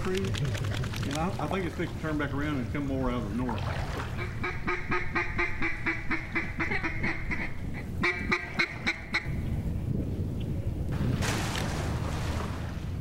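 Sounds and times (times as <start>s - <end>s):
duck call quacks: 4.2s - 9.3s.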